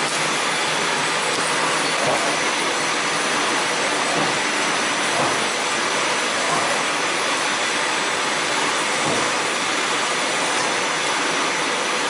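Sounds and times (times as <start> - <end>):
machinery hissing: 0.0 - 12.0.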